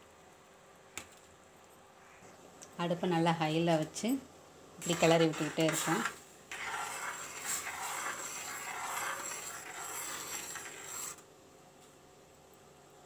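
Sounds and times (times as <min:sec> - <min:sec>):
mixture bubbling in a pan: 0:04.8 - 0:11.2
spoon scraping a pan: 0:04.8 - 0:11.2.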